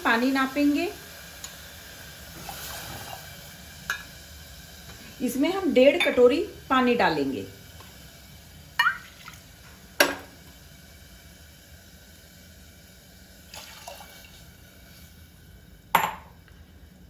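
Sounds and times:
glass clinking on cooker: 3.9 - 4.1, 5.9 - 6.3, 8.8 - 9.1, 10.0 - 10.3, 15.9 - 16.4
water pouring: 8.8 - 9.4, 13.5 - 14.5.

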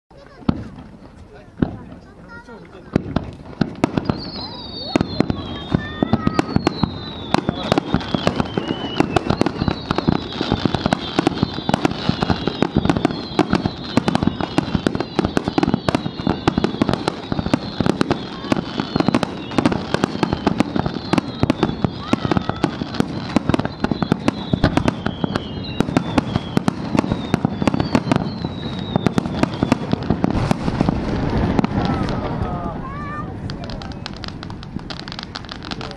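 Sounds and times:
fireworks bangs and crackles: 0.1 - 35.9
high whistling tones sliding down: 4.0 - 29.9.

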